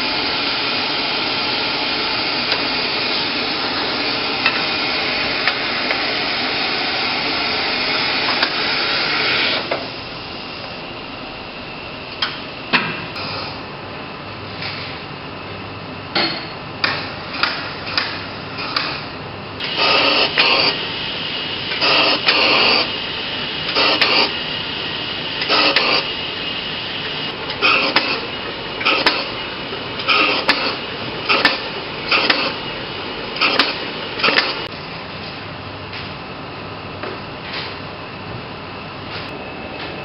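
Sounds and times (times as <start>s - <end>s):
machine-room hum: 0.0s - 40.0s
film projector clicking and clacking: 21.7s - 22.9s, 23.7s - 24.4s, 25.4s - 26.1s, 27.4s - 29.4s, 30.0s - 32.6s, 33.4s - 34.7s.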